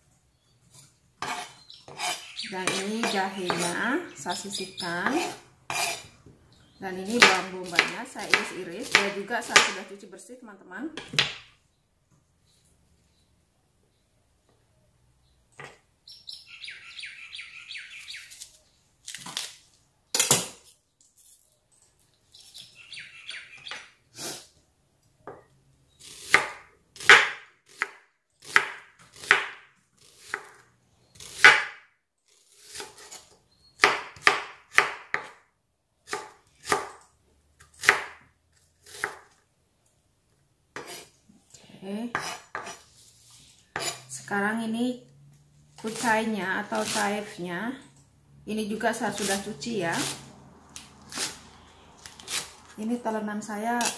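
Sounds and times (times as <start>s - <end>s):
bird chirping: 1.5s - 3.2s, 4.0s - 5.0s, 6.4s - 6.8s, 11.7s - 18.9s, 22.1s - 24.0s, 33.4s - 33.8s.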